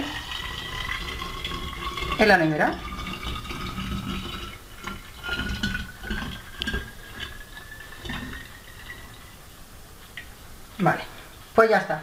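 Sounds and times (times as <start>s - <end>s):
liquid pouring into bottle: 0.0s - 9.6s.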